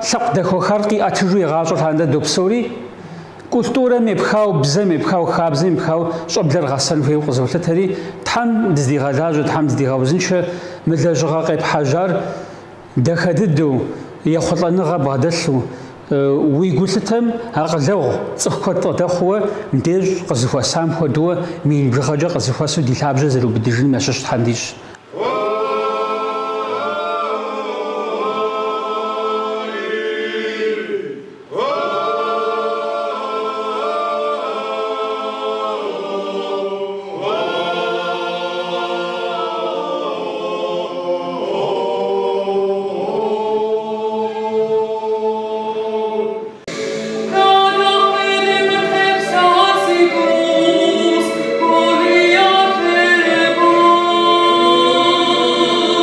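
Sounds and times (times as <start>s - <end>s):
men's choir singing a cappella: 25.0s - 56.0s
woman singing solo: 46.7s - 56.0s.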